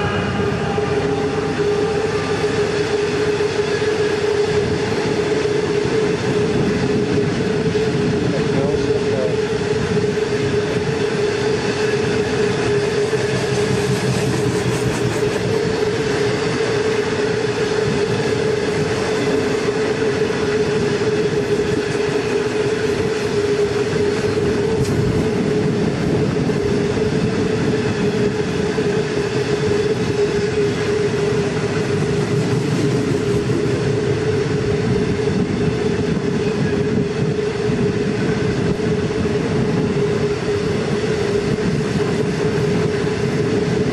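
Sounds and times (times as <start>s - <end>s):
train wheels rumbling on rails: 0.0s - 43.9s.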